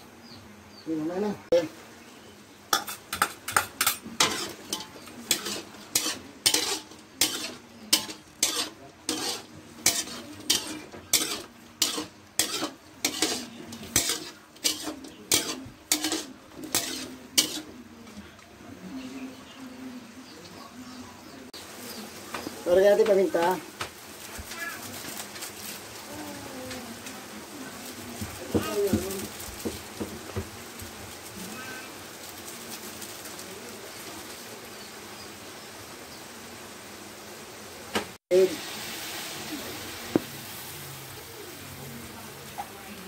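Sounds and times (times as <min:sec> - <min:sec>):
low sizzle: 0:00.0 - 0:43.0
metal spatula scraping wok: 0:02.7 - 0:18.2.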